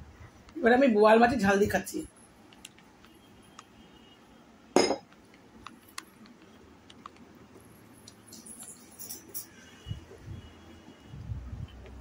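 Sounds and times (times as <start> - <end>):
crockery clinking on plate: 4.8 - 5.1.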